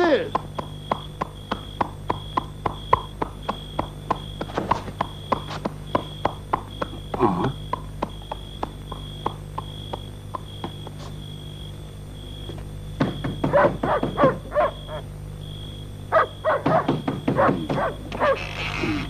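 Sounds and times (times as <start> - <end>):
horse hooves clip-clopping: 0.4 - 11.2.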